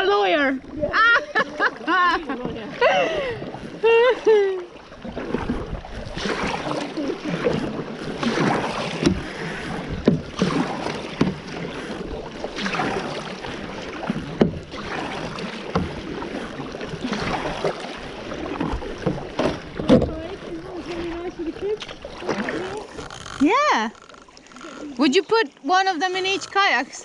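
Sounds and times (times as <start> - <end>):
paddle strokes splashing: 0.0 - 27.0.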